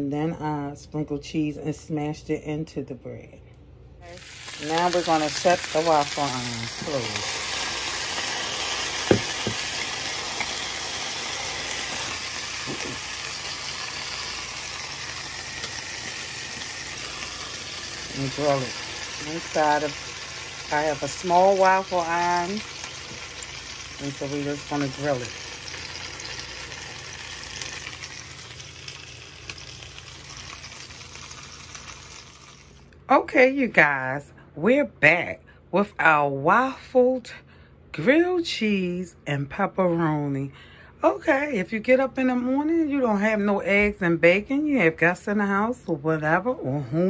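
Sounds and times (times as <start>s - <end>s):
sandwich sizzling in waffle iron: 4.0s - 32.9s.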